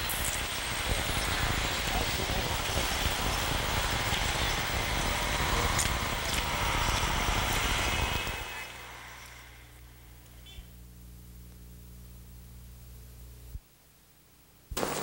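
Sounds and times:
street traffic: 0.0s - 10.7s
faint low hum: 0.0s - 14.8s.

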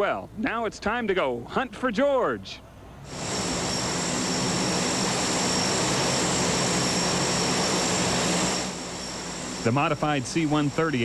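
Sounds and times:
turboprop aircraft engines running: 2.7s - 11.0s.

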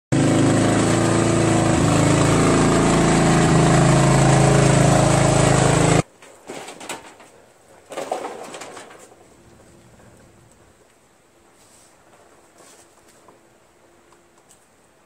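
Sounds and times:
lawn tractor engine running: 0.1s - 6.1s.

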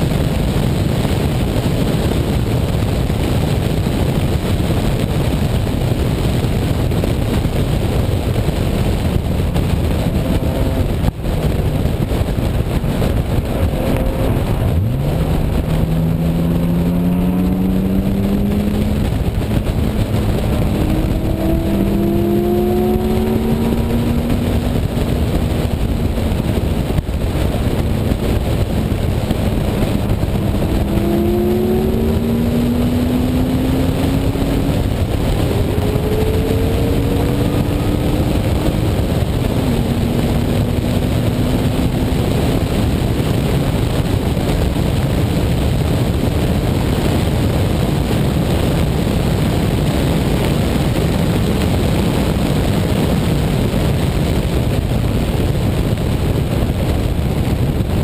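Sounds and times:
car engine accelerating: 0.0s - 58.0s
wind and road noise: 0.0s - 58.0s.

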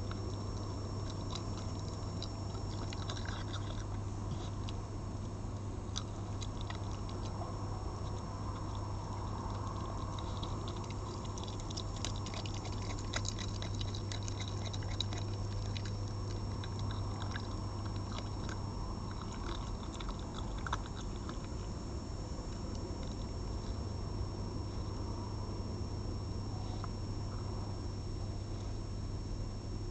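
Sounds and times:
fox chewing and smacking: 0.0s - 25.0s
steady low hum: 0.0s - 29.9s.

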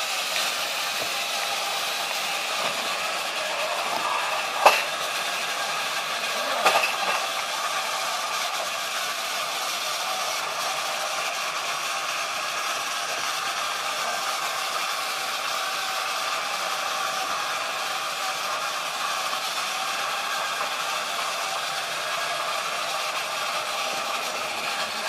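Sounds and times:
toy motors whirring: 0.0s - 25.0s
plastic clatter of toy crash: 6.4s - 7.3s.

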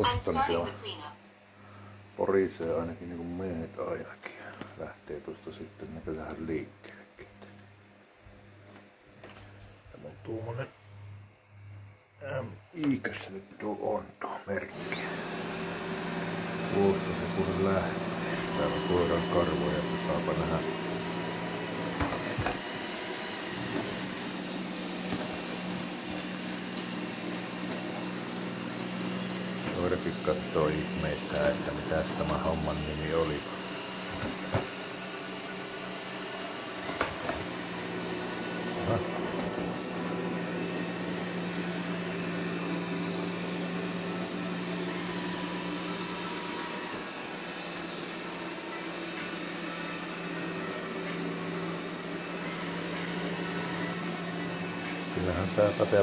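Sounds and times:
robot vacuum fan hum: 14.5s - 56.0s.

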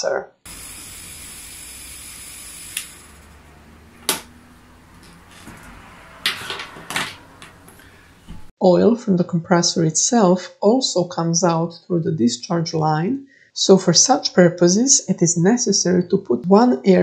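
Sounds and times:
compressor hum and hiss: 0.5s - 5.7s
handling noises: 3.9s - 8.5s.

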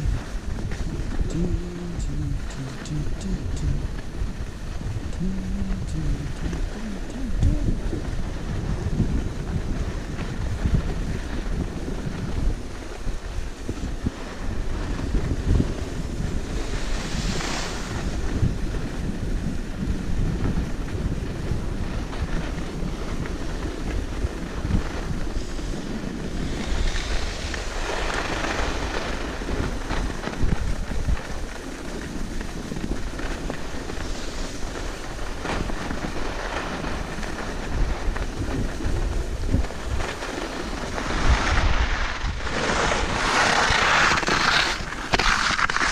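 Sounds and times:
skis hissing over snow: 0.0s - 45.9s
wind buffeting microphone: 0.0s - 45.9s.

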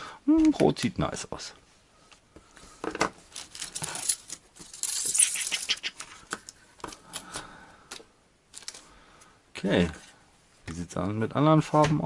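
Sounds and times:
plastic parts clicking and rattling: 2.8s - 8.9s
packaging rustling: 3.2s - 6.5s.

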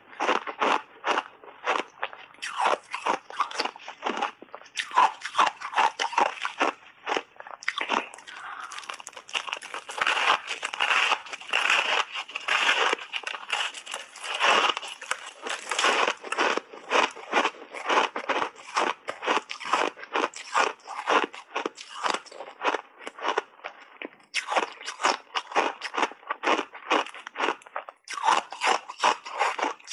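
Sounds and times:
ice crunching while chewed: 0.0s - 29.9s.

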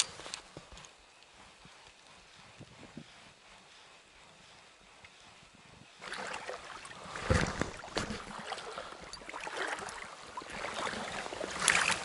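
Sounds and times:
river water splashing: 6.0s - 12.0s.

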